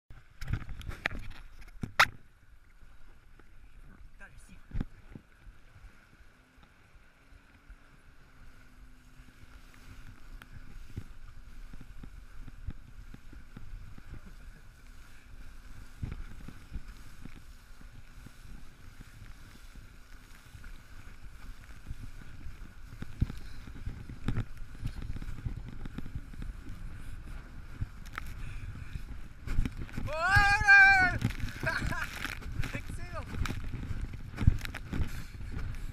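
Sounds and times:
rush of water and wind: 0.1s - 35.9s
inflatable ring thumping on waves: 0.2s - 2.3s, 9.3s - 35.9s.

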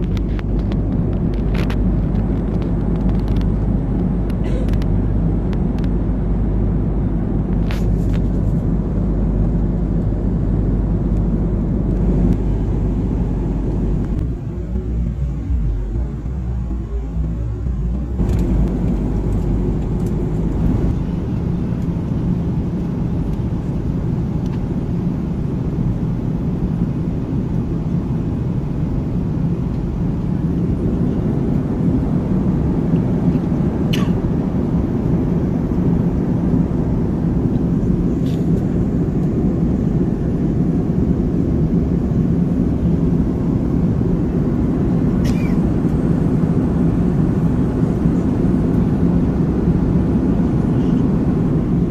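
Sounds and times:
airliner cabin engine roar: 0.0s - 51.9s.

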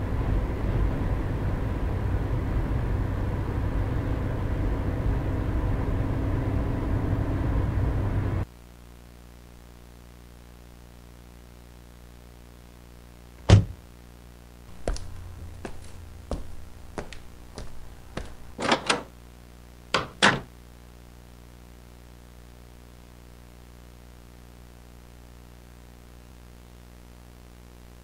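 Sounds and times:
low electrical hum: 0.0s - 28.0s
door being pounded: 13.4s - 13.8s, 20.0s - 20.5s.

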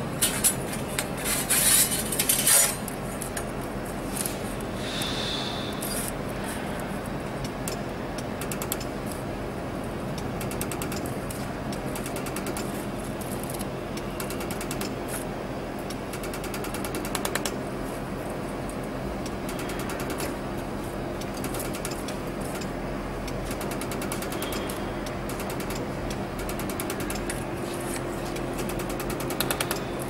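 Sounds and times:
laser welder sharp ticks: 7.4s - 9.0s, 11.7s - 12.8s, 13.5s - 15.0s, 15.9s - 17.6s, 19.2s - 20.4s, 21.2s - 27.5s, 28.6s - 29.9s.

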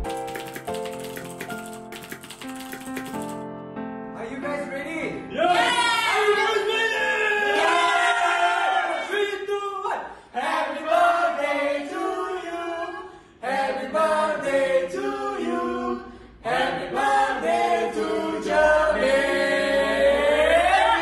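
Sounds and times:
group singing unaccompanied: 10.3s - 21.0s.

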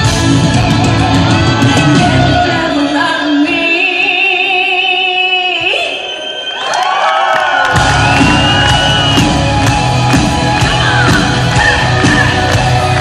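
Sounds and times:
live metal band playing: 0.0s - 2.8s, 7.8s - 13.0s.

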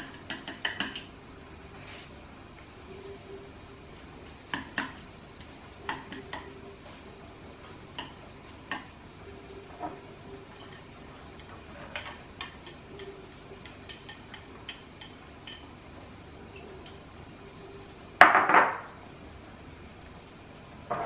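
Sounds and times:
chopsticks tapping on ceramic: 0.0s - 1.1s, 4.5s - 5.0s, 5.8s - 6.5s, 7.9s - 8.9s, 11.4s - 15.7s.

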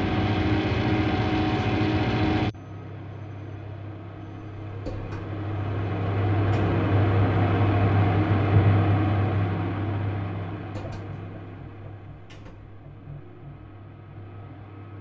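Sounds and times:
low machine hum: 0.0s - 15.0s
mechanical rumble: 0.0s - 15.0s.

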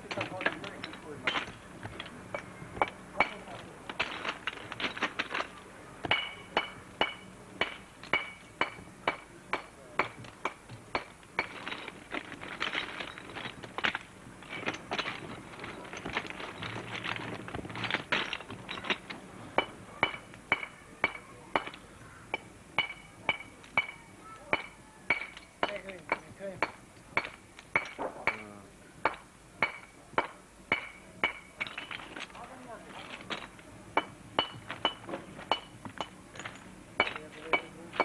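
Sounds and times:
hammer striking stone: 0.1s - 4.2s, 6.0s - 11.8s, 24.6s - 32.0s, 34.0s - 38.0s.

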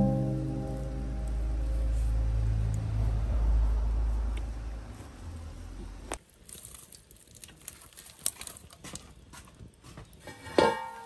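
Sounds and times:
low rumble: 0.0s - 6.1s
wood fire crackling: 0.0s - 11.0s.

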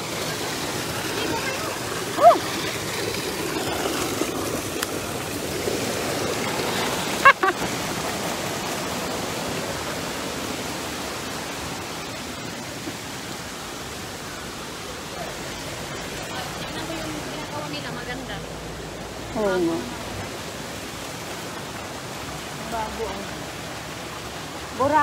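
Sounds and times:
flowing spring water: 0.0s - 25.0s
person crying out: 2.2s - 2.5s.

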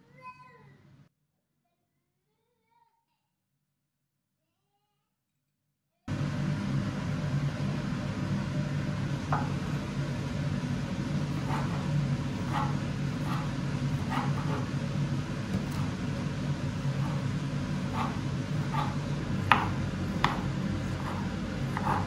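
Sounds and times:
steady low hum: 6.1s - 22.0s
knife slicing on a cutting board: 11.3s - 14.7s, 17.8s - 22.0s.

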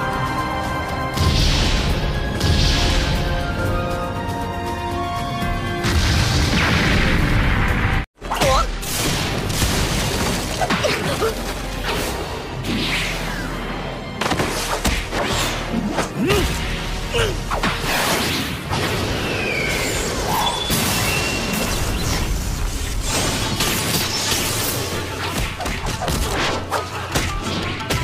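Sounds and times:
battle music: 0.0s - 9.8s.

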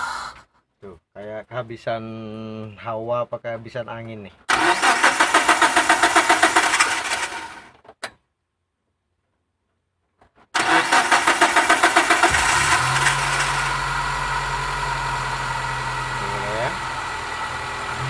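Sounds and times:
car engine cranking: 4.5s - 7.7s, 10.6s - 15.2s
car engine idling: 10.6s - 18.0s.

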